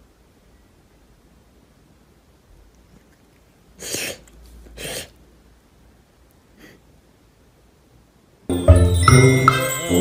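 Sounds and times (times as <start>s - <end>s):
cat sneezing: 3.8s - 4.2s, 4.8s - 5.2s.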